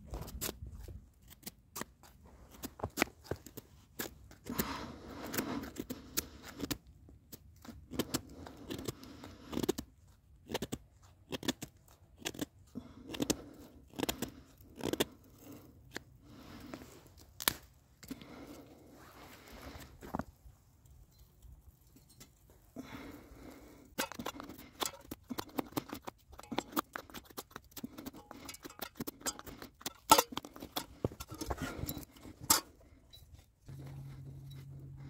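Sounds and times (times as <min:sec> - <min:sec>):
sticks snapping and cracking: 0:17.4 - 0:17.7.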